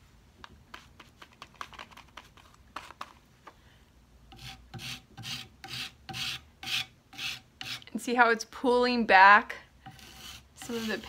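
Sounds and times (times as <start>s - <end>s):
brush scrubbing wood: 9.9s - 11.0s.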